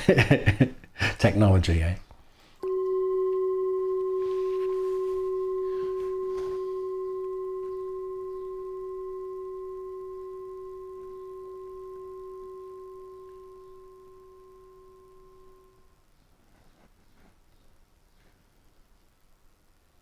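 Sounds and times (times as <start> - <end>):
bell-like tone ringing: 2.6 - 15.9.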